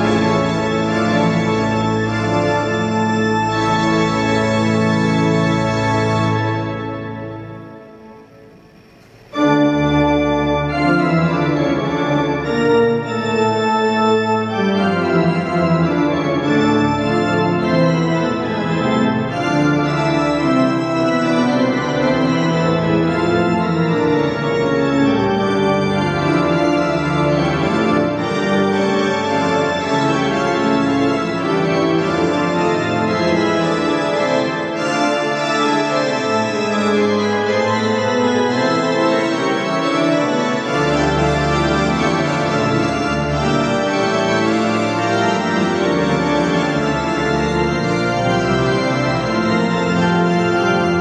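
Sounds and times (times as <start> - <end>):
pipe organ chords: 0.0 - 51.0.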